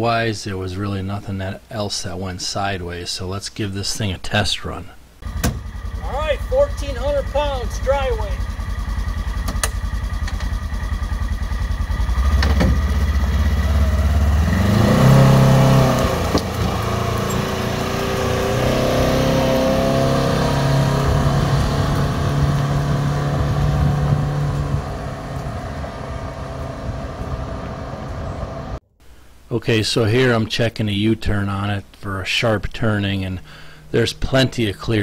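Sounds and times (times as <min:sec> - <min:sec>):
vehicle engine idling and revving: 0:05.2 - 0:28.8.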